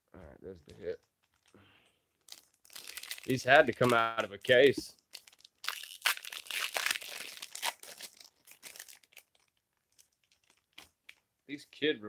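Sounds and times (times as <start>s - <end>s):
card pack wrapper crinkling: 2.2s - 11.2s
cards being handled: 3.2s - 4.8s.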